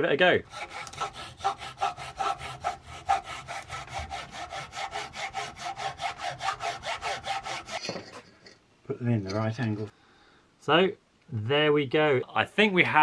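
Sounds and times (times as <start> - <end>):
hacksaw cutting wood: 0.5 - 8.2.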